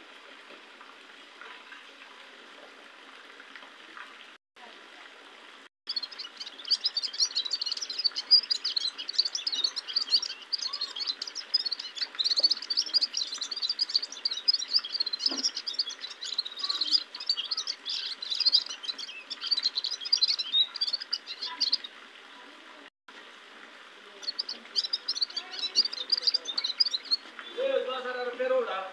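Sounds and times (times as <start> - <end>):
finch twittering song: 5.9 - 21.9, 24.2 - 27.8.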